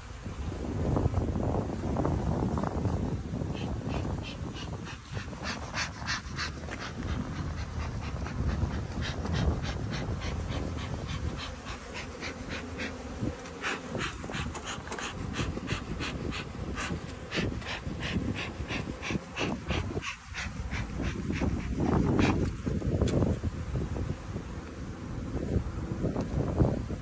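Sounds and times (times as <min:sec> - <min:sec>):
rhythmic hissing puffs: 0:03.4 - 0:22.8.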